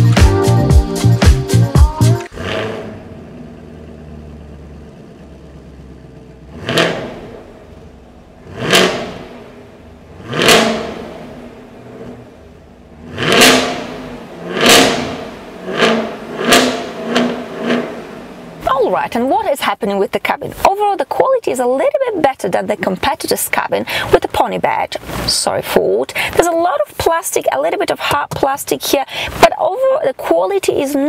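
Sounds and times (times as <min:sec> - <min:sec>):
car engine idling: 0:00.0 - 0:29.5
engine revving blips: 0:02.2 - 0:18.7.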